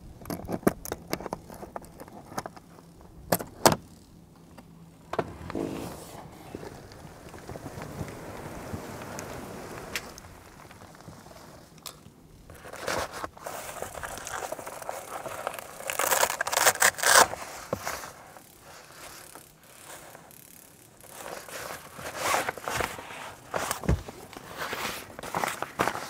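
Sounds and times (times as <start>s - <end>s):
fabric rustling and scraping: 5.0s - 11.8s, 12.5s - 20.3s, 21.1s - 26.0s.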